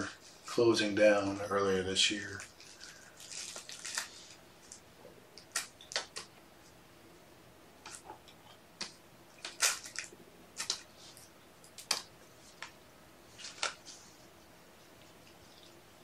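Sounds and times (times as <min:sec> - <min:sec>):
rustles: 0:00.0 - 0:06.8.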